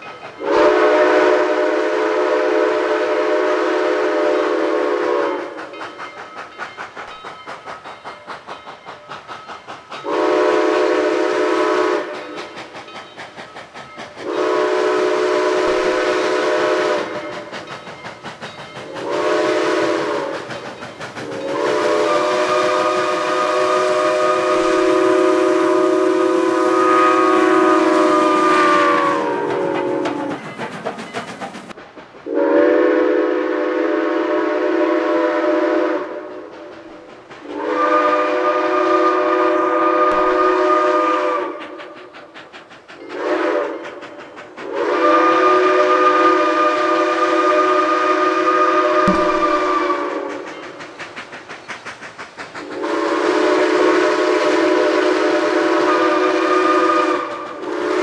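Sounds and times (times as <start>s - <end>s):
steam hissing: 0.0s - 58.0s
steam whistle blasts: 0.4s - 5.8s, 10.0s - 12.8s, 14.2s - 17.8s, 18.7s - 30.4s, 32.3s - 36.8s, 37.4s - 42.2s, 43.0s - 44.0s, 44.6s - 50.9s, 52.6s - 58.0s.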